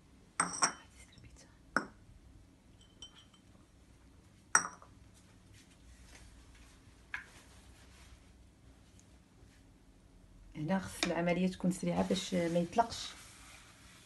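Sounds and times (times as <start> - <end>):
ceramic cups clinking: 0.4 - 0.9, 2.8 - 3.6, 4.5 - 4.9.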